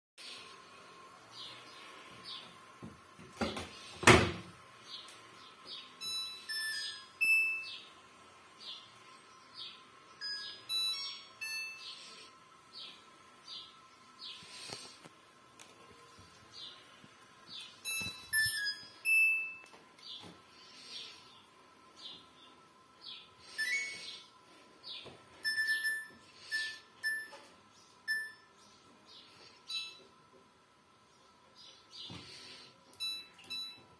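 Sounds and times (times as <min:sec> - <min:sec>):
washing machine panel beeping: 0:06.0 - 0:07.9, 0:10.2 - 0:12.0, 0:17.8 - 0:19.7, 0:23.5 - 0:24.2, 0:25.4 - 0:28.6, 0:29.7 - 0:30.1, 0:33.0 - 0:33.9
faint chirps: 0:17.6 - 0:30.1
electronic power-on tune: 0:17.8 - 0:19.6.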